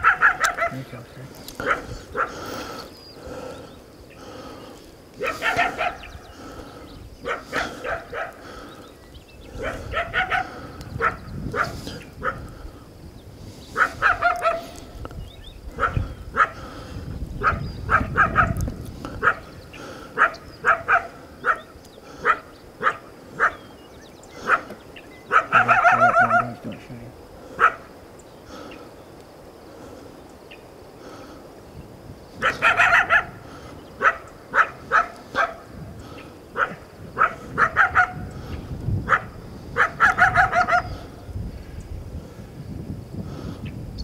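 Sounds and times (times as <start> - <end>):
coyote barking and yipping: 0.0 - 2.9, 5.1 - 8.8, 9.5 - 12.5, 13.7 - 15.0, 15.6 - 16.7, 17.4 - 26.7, 27.5 - 28.0, 32.3 - 41.2.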